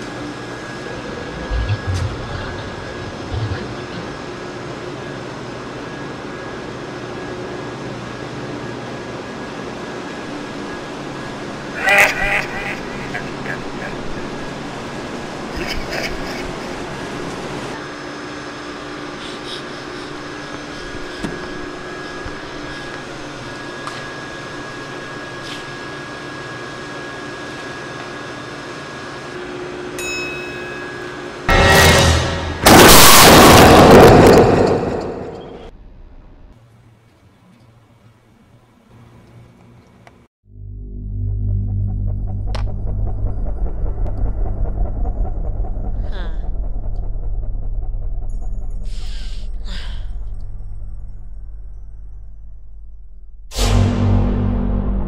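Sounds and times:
ventilation hum: 0:00.0 - 0:40.3
elevator arrival chime: 0:29.9 - 0:31.5.

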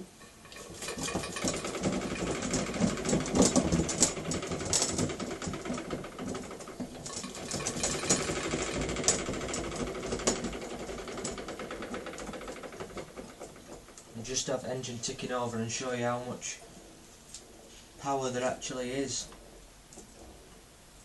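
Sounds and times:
model steam engine clattering: 0:00.0 - 0:16.6.

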